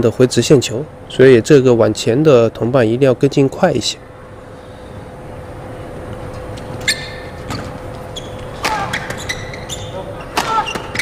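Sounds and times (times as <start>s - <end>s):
shoes squeaking on court: 6.3s - 11.0s
racket hitting shuttlecock: 8.5s - 9.3s, 10.3s - 11.0s.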